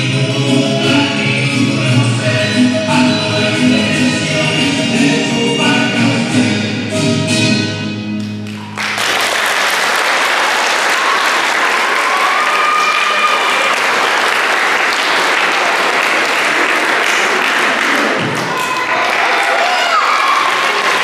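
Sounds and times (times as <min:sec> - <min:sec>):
music: 0:00.0 - 0:09.1
audience applause: 0:08.4 - 0:21.0.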